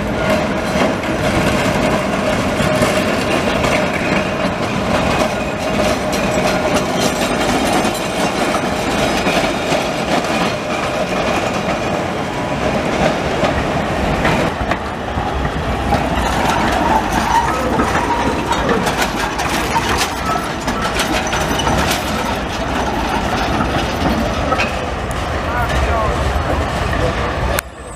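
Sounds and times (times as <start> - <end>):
tram wheels clacking over rail joints: 0.0 - 27.9
tram wheels squealing: 0.0 - 27.9.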